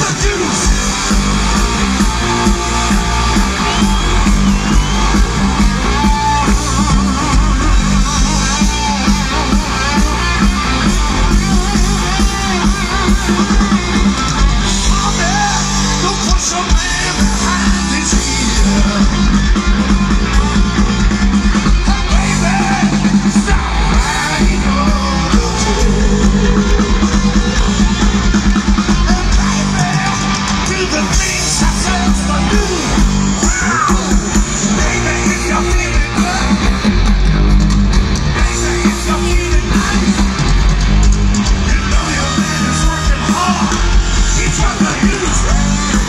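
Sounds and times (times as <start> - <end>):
live hard rock band: 0.0 - 46.0
person singing: 14.8 - 21.1, 21.8 - 28.0, 28.9 - 36.7, 38.4 - 40.3, 41.5 - 46.0.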